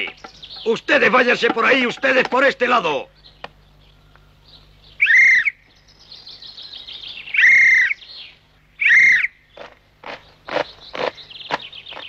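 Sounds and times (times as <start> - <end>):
high whistled calls: 3.1 - 12.0.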